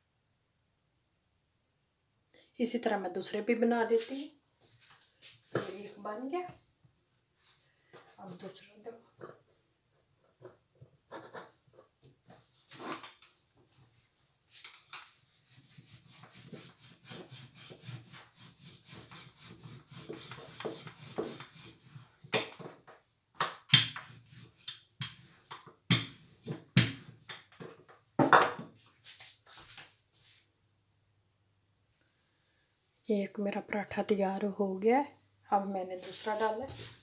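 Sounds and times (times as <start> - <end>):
rolling pin rolling dough: 10.2 - 27.9.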